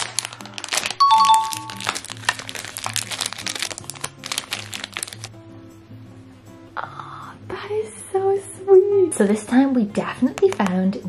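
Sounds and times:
plastic packaging crinkling: 0.0s - 5.3s
light background music: 0.0s - 11.0s
two-note chime: 1.0s - 1.8s.

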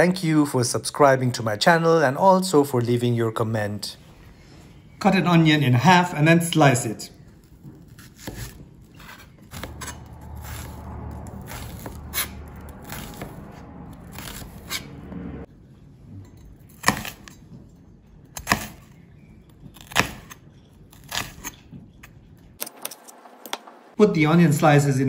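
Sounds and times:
knife chopping on cutting board: 7.8s - 10.7s, 11.5s - 13.4s, 16.8s - 17.3s, 18.4s - 18.9s.

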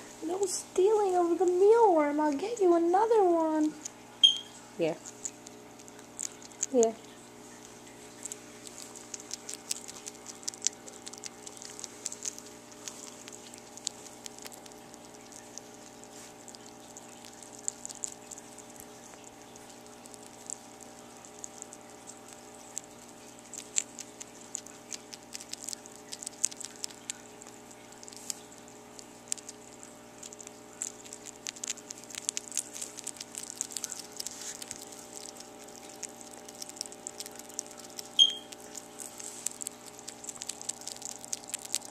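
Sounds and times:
sugar gliders chewing: 0.0s - 41.9s.

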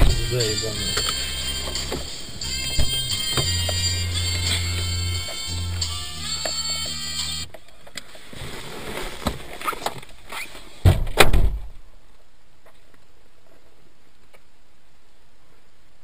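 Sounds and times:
heavy thumps: 0.0s - 0.4s
rustling: 7.8s - 10.9s
faint steady hiss: 11.6s - 16.0s.

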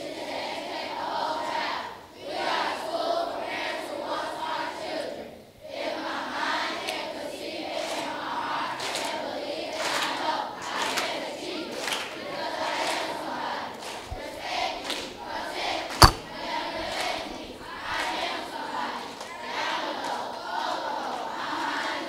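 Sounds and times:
sharp knock: 16.0s - 16.5s.

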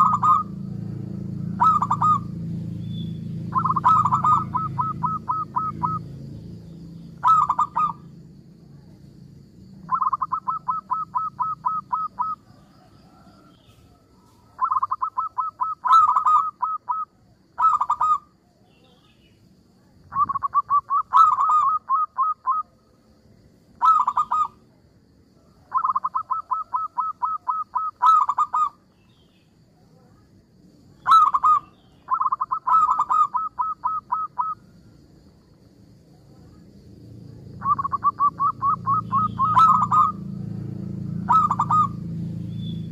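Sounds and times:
dove cooing: 0.0s - 2.8s, 3.4s - 6.3s, 7.1s - 8.1s, 9.8s - 18.3s, 20.1s - 22.8s, 23.8s - 24.6s, 25.6s - 28.8s, 31.0s - 34.7s, 37.6s - 40.4s, 41.0s - 42.1s.

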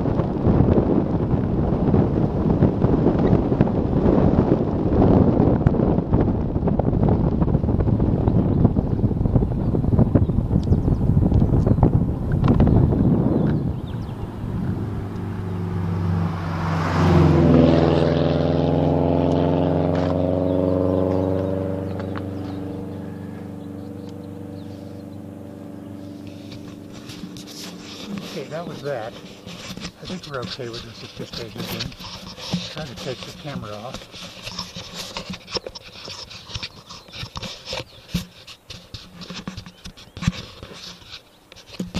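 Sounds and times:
engine hum: 0.0s - 41.9s
car tyre noise passing: 11.1s - 39.1s.

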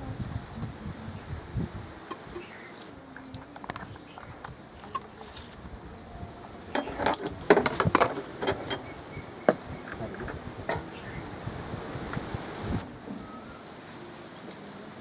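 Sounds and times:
glass and metal clinks: 6.7s - 9.0s.

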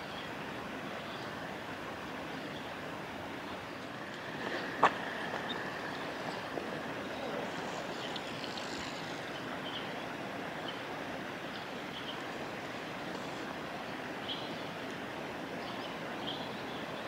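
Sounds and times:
flowing water: 0.0s - 17.0s.

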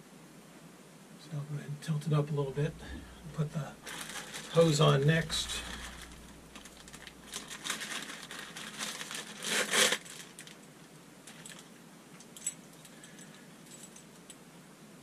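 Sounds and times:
plastic packaging crinkling: 2.6s - 11.7s.

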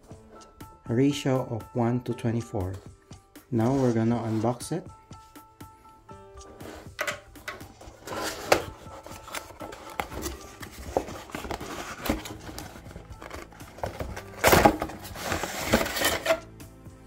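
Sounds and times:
cardboard box being opened: 8.0s - 16.4s
cardboard tray sliding out: 8.0s - 16.4s.

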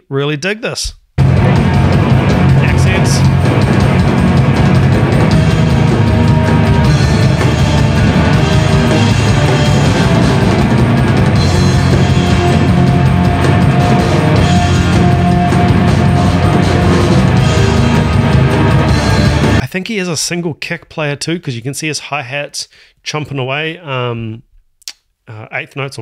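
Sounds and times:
bass guitar: 0.8s - 19.6s
hard-hitting drum kit: 0.8s - 19.7s
heavy rock band playing live: 1.2s - 19.6s.

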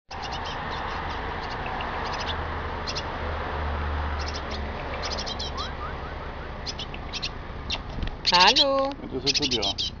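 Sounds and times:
birds chirping: 0.1s - 10.0s.

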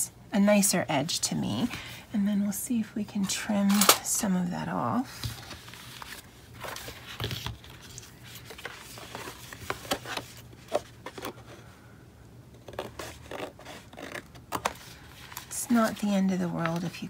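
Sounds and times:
paper rustling: 5.1s - 11.6s.

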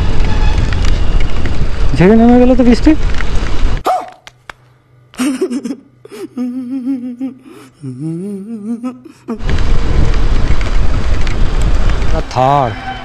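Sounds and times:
faint steady hum: 4.4s - 10.0s
man making wavering vocal sounds: 6.1s - 9.5s.

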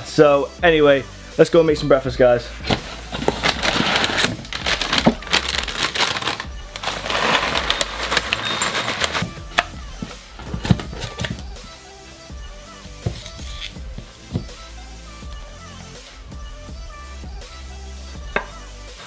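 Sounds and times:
background music: 0.0s - 19.0s
granola rattling into bowl: 2.7s - 9.3s
plastic bag crinkling: 2.7s - 9.3s.

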